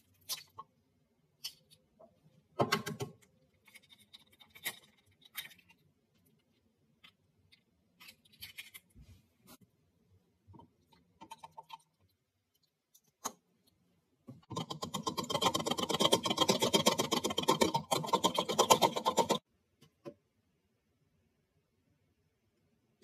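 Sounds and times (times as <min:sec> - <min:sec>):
eggs beaten in a plastic jug: 0:10.5 - 0:20.0.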